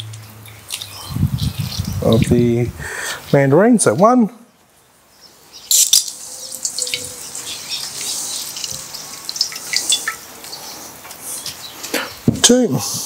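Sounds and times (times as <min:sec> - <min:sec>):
juice dripping into metal bowl: 0:05.7 - 0:11.2
squeezed fruit wet crackles: 0:06.0 - 0:12.0.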